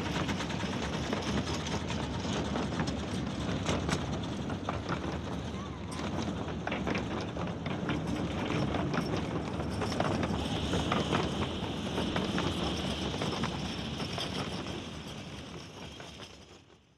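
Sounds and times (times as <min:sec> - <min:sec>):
train wheels rumbling over rail joints: 0:00.0 - 0:16.9
high steady squeal: 0:10.1 - 0:16.4.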